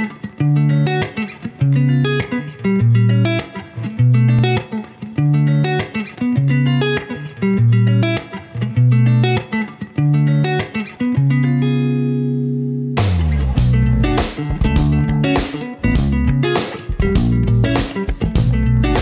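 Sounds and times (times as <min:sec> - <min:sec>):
plucked guitar: 0:00.0 - 0:19.0
bass line: 0:13.0 - 0:19.0
steady beat: 0:13.0 - 0:19.0.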